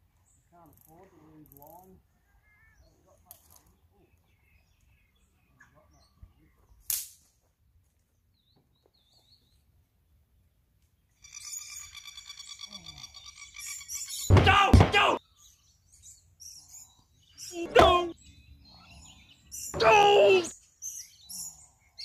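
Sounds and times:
faint bird chirps: 0.2 - 6.8, 11.1 - 14.3, 15.2 - 19.8.

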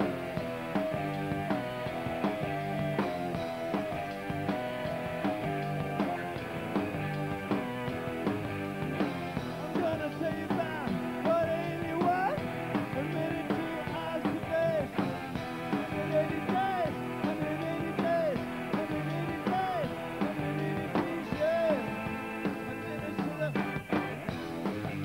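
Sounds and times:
drums: 0.0 - 25.0
electric guitars: 0.0 - 25.0
organ: 0.0 - 25.0.

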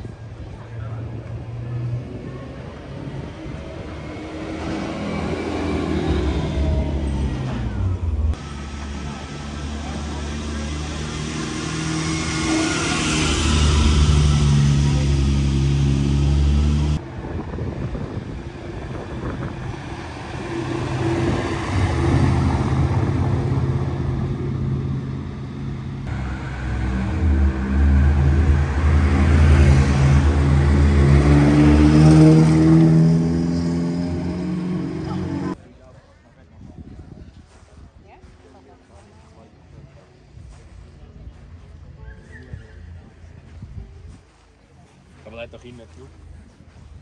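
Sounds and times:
sports car engines passing: 0.4 - 35.6
engine accelerating: 1.2 - 35.6.

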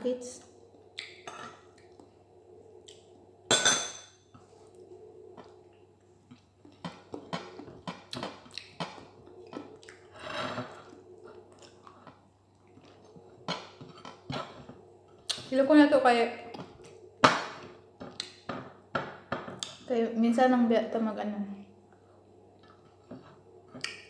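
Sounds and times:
chewing: 0.8 - 2.2, 4.4 - 15.5, 21.9 - 24.0.

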